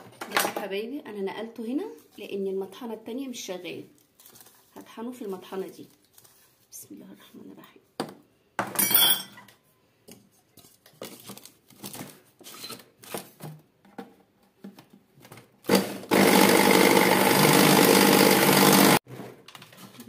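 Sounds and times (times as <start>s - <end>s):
food processor grinding: 15.7s - 19.0s.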